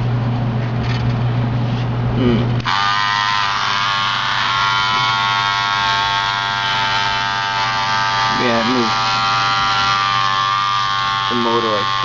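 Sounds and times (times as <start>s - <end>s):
low hum: 0.0s - 12.0s
toy vibration motor buzzing: 2.6s - 12.0s.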